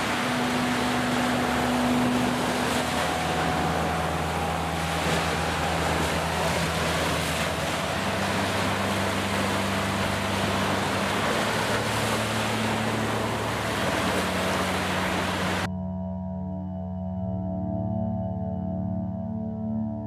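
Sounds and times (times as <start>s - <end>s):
ocean surf on beach: 0.0s - 15.7s
low held drone: 0.0s - 20.0s.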